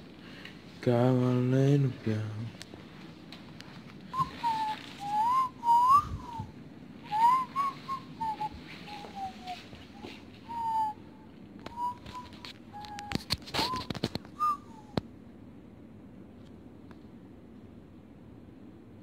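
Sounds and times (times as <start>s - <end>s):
person whistling a tune: 4.1s - 15.0s.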